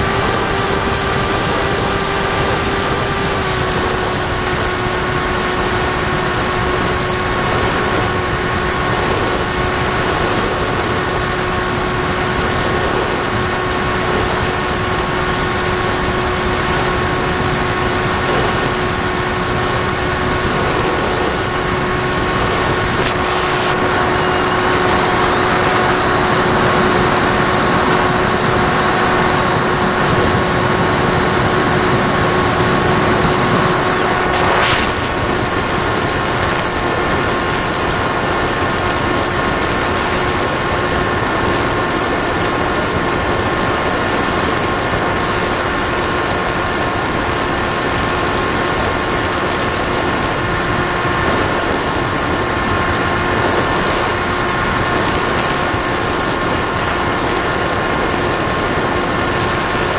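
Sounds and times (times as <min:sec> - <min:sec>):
thin high tone: 0:00.0 - 0:26.0
model plane motor whine: 0:00.0 - 0:59.9
wind rush: 0:00.0 - 0:59.9.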